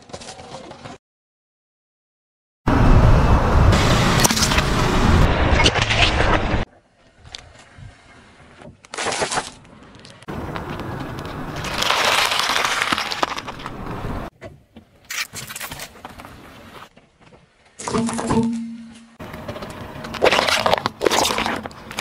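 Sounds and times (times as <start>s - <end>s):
car tyre crushing objects: 8.6s - 22.0s
lettuce crunching under tyre: 8.8s - 14.3s, 19.2s - 22.0s.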